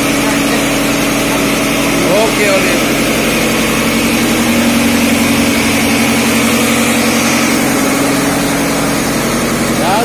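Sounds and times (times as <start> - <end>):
diesel engine running: 0.0 - 10.0.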